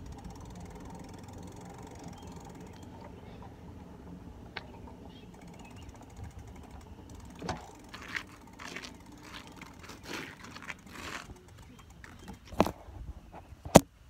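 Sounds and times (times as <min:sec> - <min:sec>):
bicycle rolling over pavement: 0:00.0 - 0:13.4
bicycle rattling and knocking: 0:00.0 - 0:13.8.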